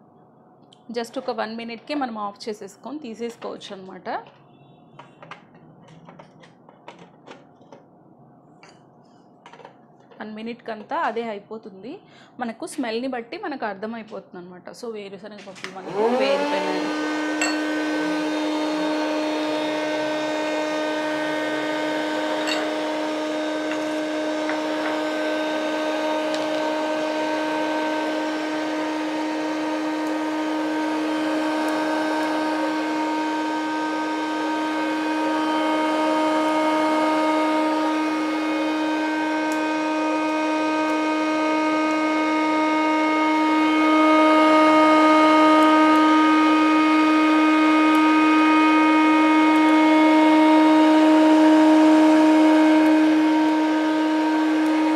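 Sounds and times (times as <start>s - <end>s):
popcorn maker motor whine: 15.6s - 54.9s.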